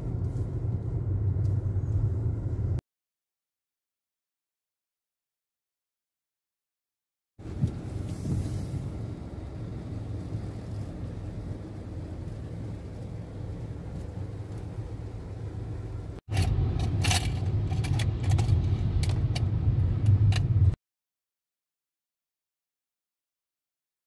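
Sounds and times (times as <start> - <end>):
car road and engine rumble: 0.0 - 2.8, 7.4 - 20.8.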